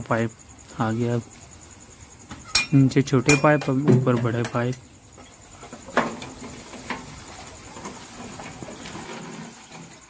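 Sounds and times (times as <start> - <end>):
faint scraping: 5.2 - 10.0.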